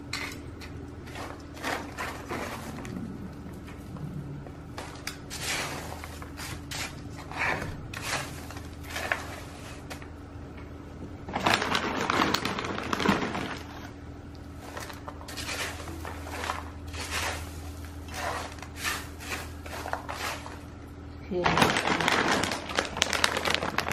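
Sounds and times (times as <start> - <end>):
bark chips rustling and clattering: 11.2 - 13.9, 14.6 - 20.7, 21.3 - 23.9.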